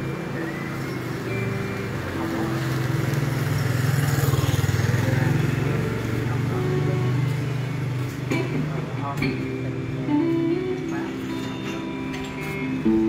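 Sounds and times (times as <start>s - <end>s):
motor vehicle engine running: 0.0s - 10.0s
people talking: 2.1s - 2.8s, 4.9s - 7.5s, 8.3s - 12.2s.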